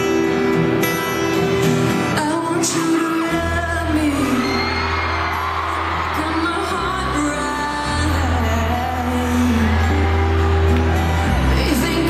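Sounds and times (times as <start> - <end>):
woman singing with pop band: 2.1 - 4.9, 6.0 - 10.1, 11.5 - 12.0.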